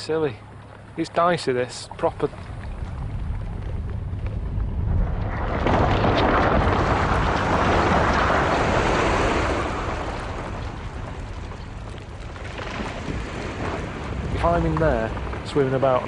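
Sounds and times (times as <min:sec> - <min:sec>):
ice collapsing into water: 0:04.6 - 0:16.0.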